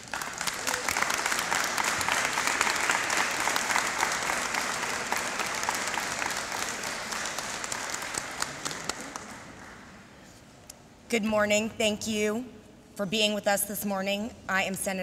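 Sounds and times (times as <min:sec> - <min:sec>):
crowd applauding: 0:00.0 - 0:10.1.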